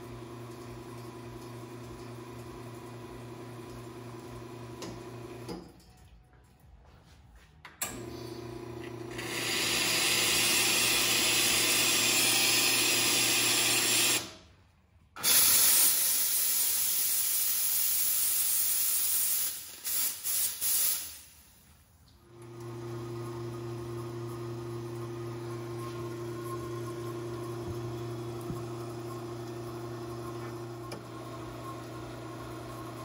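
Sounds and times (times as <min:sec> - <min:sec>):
espresso machine pump humming: 0:00.0 - 0:05.5, 0:08.0 - 0:14.3, 0:22.3 - 0:33.0
steam hissing blasts: 0:15.2 - 0:21.6.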